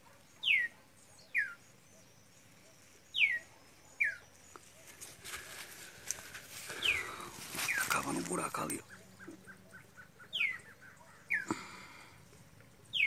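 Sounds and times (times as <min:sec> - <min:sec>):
faint rustling: 0:04.6 - 0:08.8.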